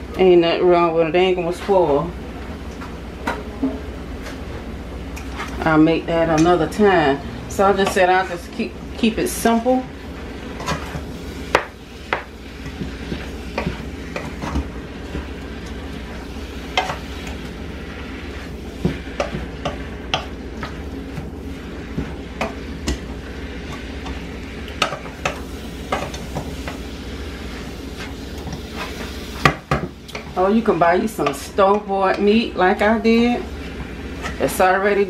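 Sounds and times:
food sizzling: 5.3s - 35.0s
spoon scraping a pan: 10.5s - 17.4s, 18.3s - 35.0s.

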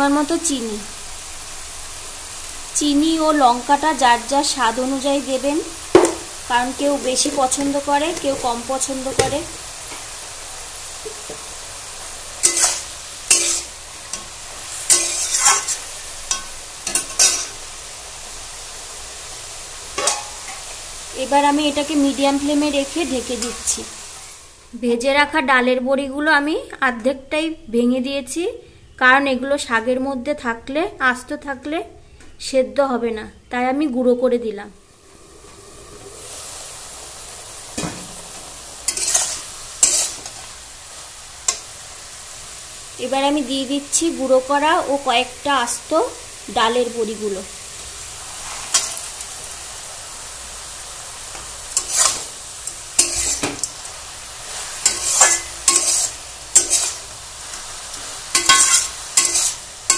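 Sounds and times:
frying sizzle: 0.0s - 28.4s, 33.5s - 59.9s
spatula scraping metal pan: 12.4s - 14.3s, 14.9s - 17.6s, 38.9s - 40.4s, 51.8s - 52.3s, 53.0s - 53.8s, 54.5s - 57.1s, 58.3s - 59.9s.

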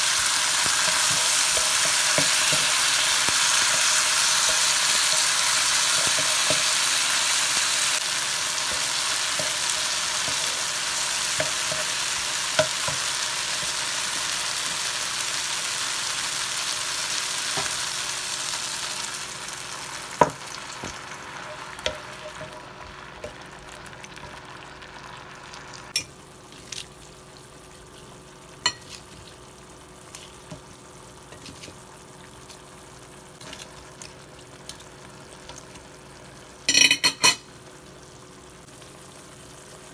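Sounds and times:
vegetables sizzling in hot oil: 0.0s - 39.9s
spatula stirring in pan: 0.2s - 14.9s.

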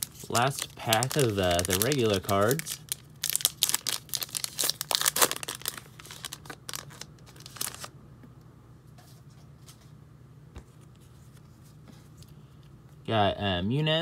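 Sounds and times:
cards rustling: 0.0s - 7.9s
plastic wrapper crinkling and tearing: 0.0s - 7.9s.

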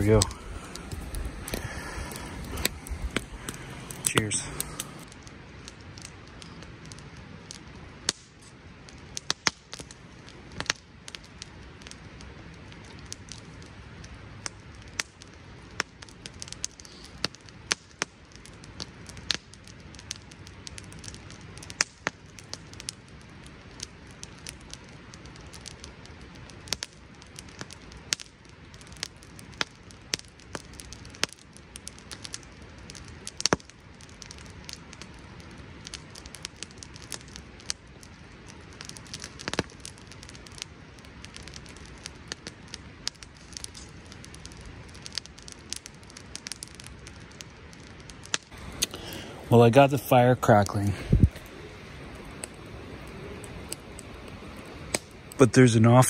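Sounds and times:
campfire crackling and popping: 0.0s - 56.0s
flames hissing: 0.0s - 56.0s.

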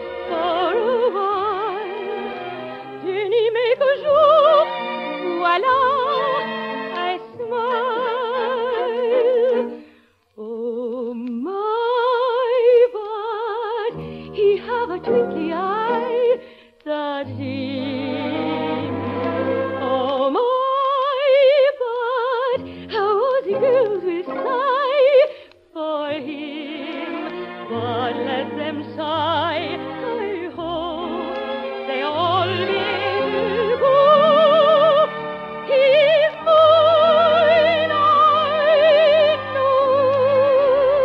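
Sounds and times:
operatic soprano singing: 0.0s - 2.4s, 3.0s - 9.8s, 10.4s - 41.0s
orchestral accompaniment: 0.0s - 9.8s, 17.2s - 20.4s, 22.6s - 25.4s, 26.1s - 41.0s.

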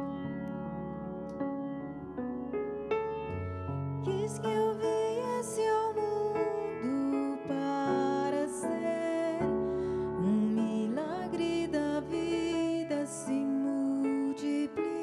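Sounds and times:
electronic keyboard: 0.0s - 15.0s
woman singing: 4.0s - 15.0s.

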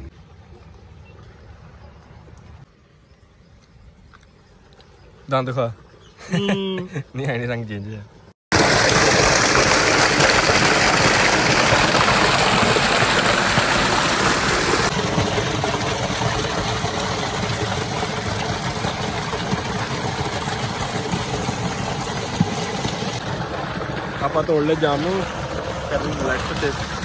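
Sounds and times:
water gushing into a tank: 8.5s - 27.0s.

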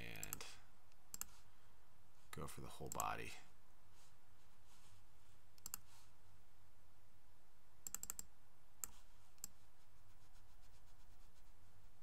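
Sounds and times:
faint room hum: 0.0s - 12.0s
mouse and keyboard clicks: 5.6s - 5.9s, 7.8s - 9.6s.

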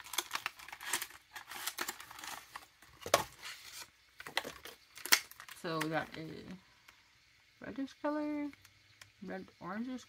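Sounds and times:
packaging rustling and crinkling: 0.0s - 6.2s.

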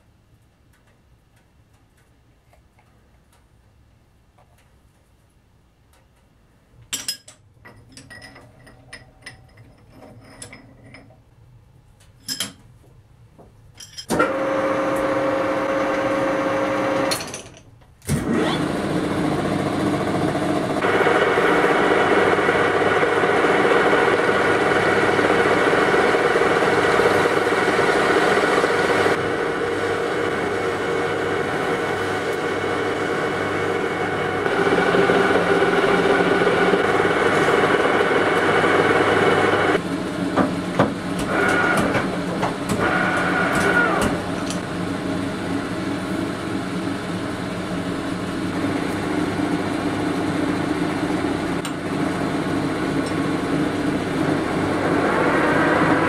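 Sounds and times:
metal lathe motor humming: 18.3s - 39.9s, 41.2s - 45.8s, 48.1s - 56.0s.

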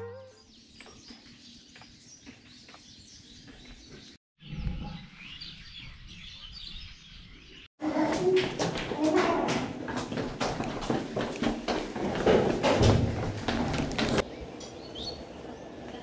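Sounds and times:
birds chirping: 0.0s - 8.4s, 13.8s - 16.0s
faint outdoor background noise: 14.0s - 16.0s.

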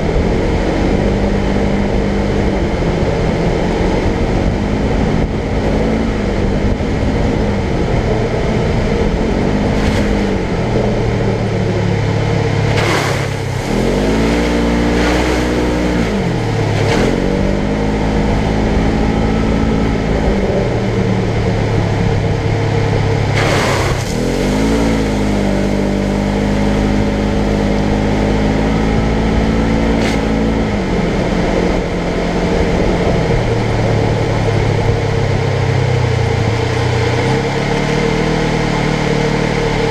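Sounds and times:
engine revving on dirt trail: 0.0s - 39.9s.

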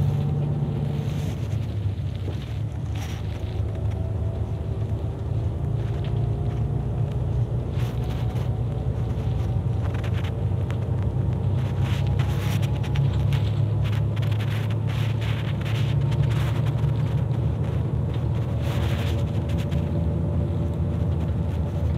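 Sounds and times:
bus engine and road rumble: 0.0s - 21.9s.

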